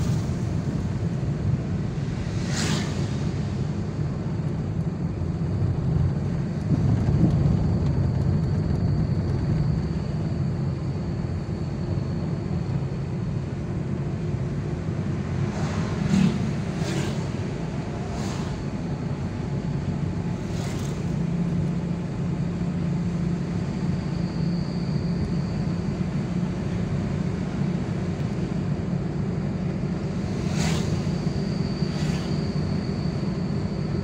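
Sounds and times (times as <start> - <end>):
vehicles passing: 0.0 - 7.4, 13.2 - 24.0, 25.9 - 34.0
car engine and road hum: 0.0 - 34.0
faint high whine: 8.2 - 34.0.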